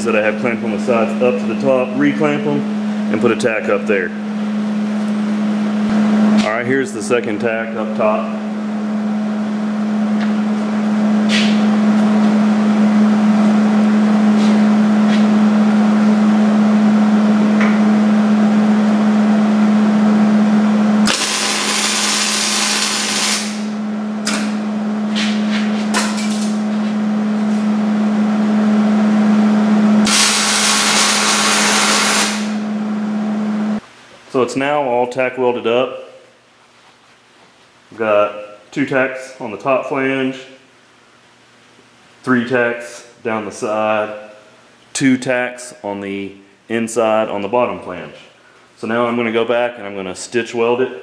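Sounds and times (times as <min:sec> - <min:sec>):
steady low hum: 0:00.0 - 0:51.0
welding arc crackle: 0:21.0 - 0:24.4, 0:30.0 - 0:32.6.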